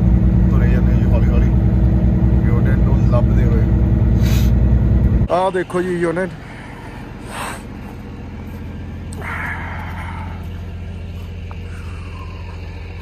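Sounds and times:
diesel truck engine idling: 0:00.0 - 0:13.0
short hiss: 0:04.2 - 0:04.6.

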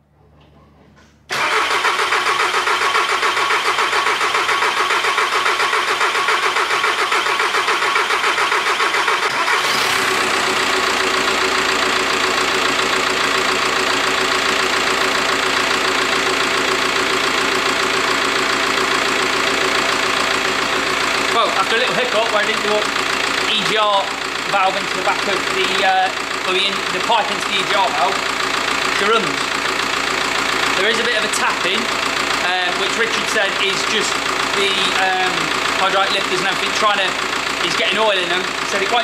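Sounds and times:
diesel engine idling: 0:01.3 - 0:39.0.

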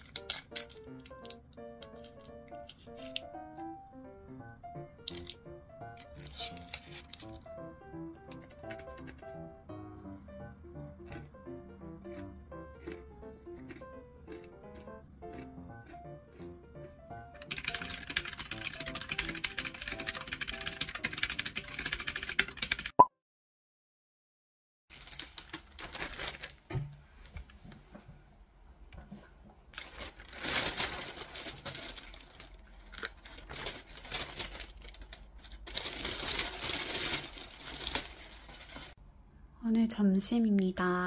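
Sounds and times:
plastic bag rustling: 0:00.0 - 0:03.3, 0:05.1 - 0:07.5, 0:24.9 - 0:27.0, 0:29.7 - 0:39.0
quiet background music: 0:00.0 - 0:22.6, 0:29.8 - 0:38.8
fast keyboard typing: 0:08.2 - 0:09.3, 0:17.3 - 0:23.0.

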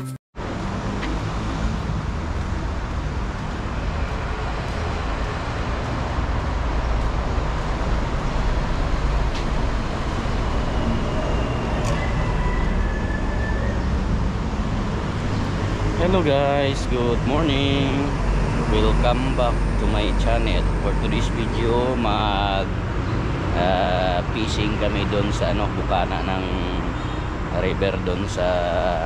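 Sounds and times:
rushing noise: 0:00.0 - 0:29.0
low engine rumble: 0:14.0 - 0:29.0.

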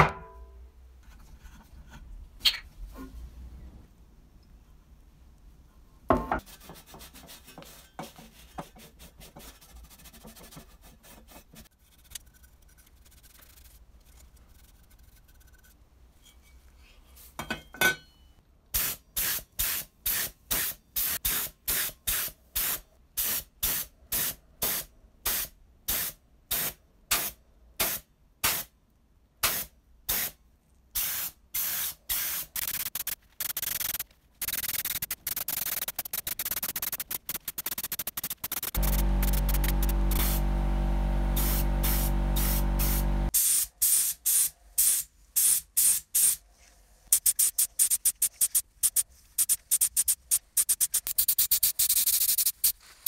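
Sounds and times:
spray gun hissing: 0:38.8 - 0:40.5, 0:41.2 - 0:46.4.

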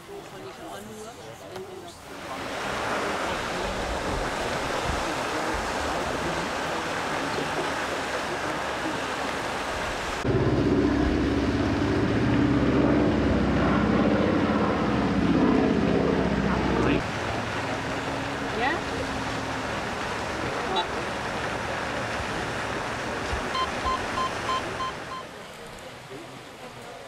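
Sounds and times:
model motorboat running on water: 0:01.6 - 0:27.0
low motor hum: 0:10.2 - 0:25.2.

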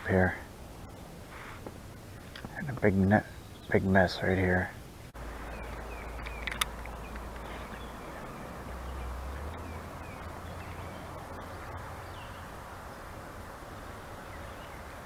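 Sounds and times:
steady hiss: 0:00.0 - 0:15.0
faint bird chirps: 0:05.3 - 0:12.6.

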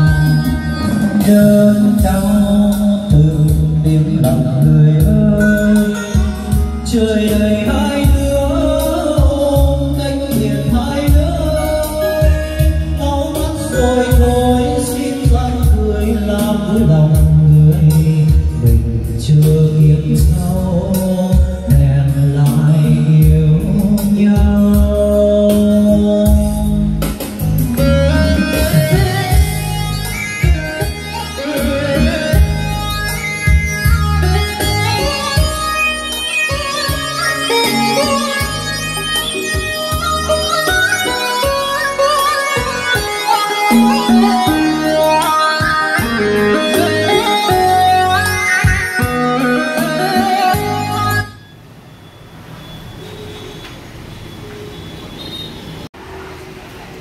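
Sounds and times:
song with singing over loudspeakers: 0:00.0 - 0:51.6.

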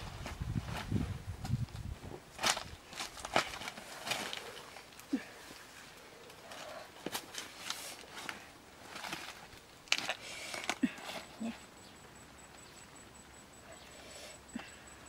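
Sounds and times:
dry leaves rustling and crackling: 0:00.0 - 0:10.8.

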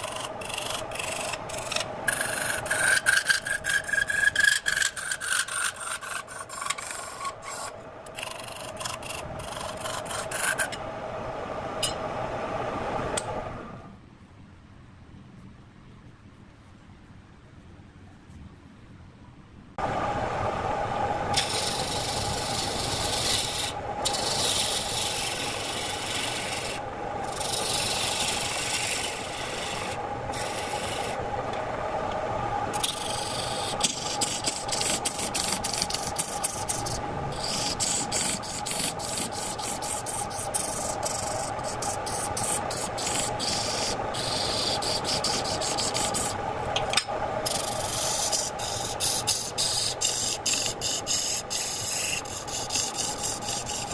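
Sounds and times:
turning tool scraping wood: 0:00.0 - 0:10.8, 0:21.4 - 0:31.7, 0:32.8 - 0:53.9
wood lathe humming: 0:00.0 - 0:13.8, 0:19.8 - 0:53.9.

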